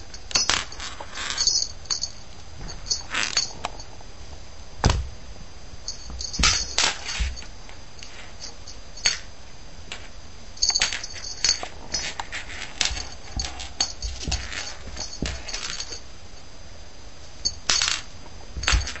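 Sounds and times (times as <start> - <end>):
small bell jingling: 0.1 - 4.0, 5.8 - 9.3, 10.6 - 12.2, 12.9 - 16.1, 18.6 - 19.0.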